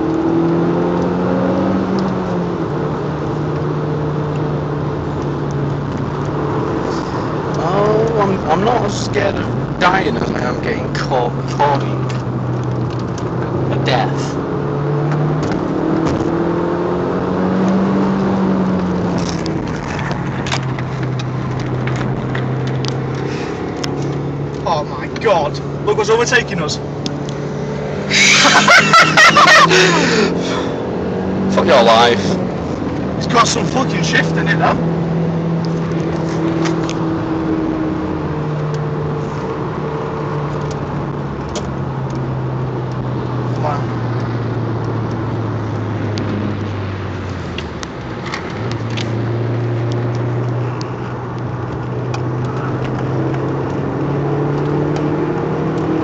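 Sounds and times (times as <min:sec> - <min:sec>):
car engine under load: 0:00.0 - 0:56.0
road and tyre noise: 0:00.0 - 0:56.0
tyre and wind noise: 0:14.4 - 0:24.6.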